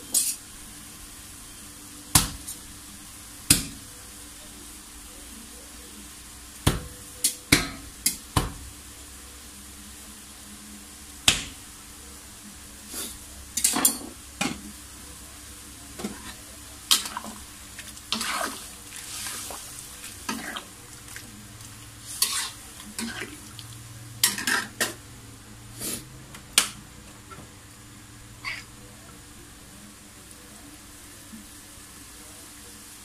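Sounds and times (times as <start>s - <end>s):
broth simmering: 8.0s - 33.0s
ladle scraping metal wok: 18.1s - 20.7s, 22.0s - 23.4s, 24.2s - 24.8s.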